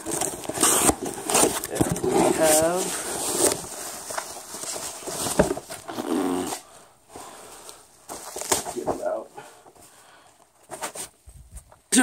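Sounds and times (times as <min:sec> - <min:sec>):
packaging rustling and scraping: 0:00.0 - 0:11.7.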